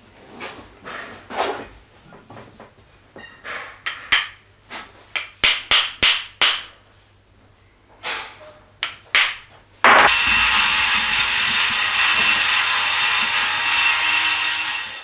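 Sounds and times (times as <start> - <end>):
hammer tapping metal: 3.8 - 4.4, 5.2 - 6.8, 8.8 - 12.6.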